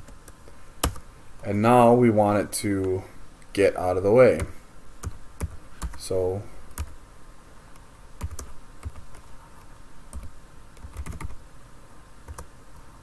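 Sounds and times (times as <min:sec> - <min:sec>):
keyboard typing: 0:00.0 - 0:01.0, 0:04.4 - 0:06.0, 0:08.2 - 0:11.4.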